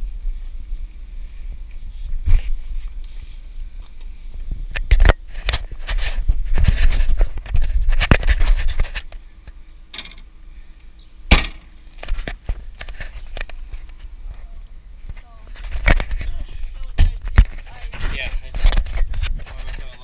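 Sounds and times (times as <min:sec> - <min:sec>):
fabric rubbing on camera: 0:05.3 - 0:09.1
car trunk lid slamming: 0:11.3 - 0:11.7.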